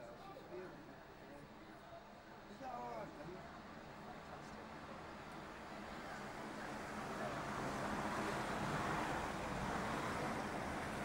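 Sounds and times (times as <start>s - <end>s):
passing vehicle: 6.7s - 11.0s.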